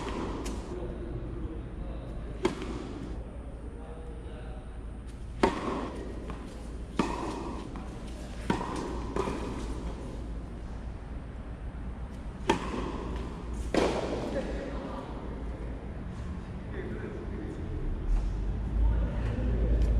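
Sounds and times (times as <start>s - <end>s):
racket hitting tennis ball: 0.0s - 0.7s, 2.3s - 3.2s, 5.3s - 10.7s, 12.0s - 14.6s.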